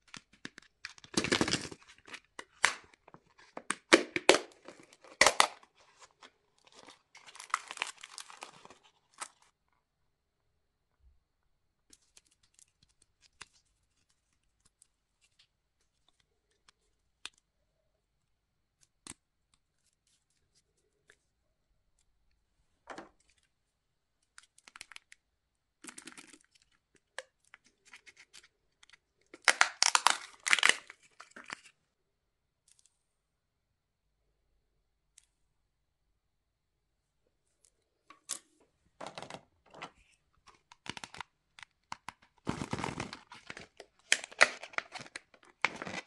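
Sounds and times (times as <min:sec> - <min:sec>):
crinkly packaging rustling: 0:00.0 - 0:09.6, 0:25.8 - 0:31.8, 0:39.0 - 0:46.0.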